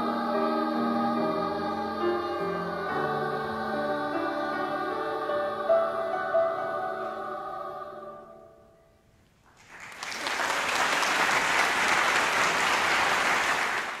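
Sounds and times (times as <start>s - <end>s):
choir singing a chord: 0.0s - 8.9s
audience applause: 9.5s - 14.0s.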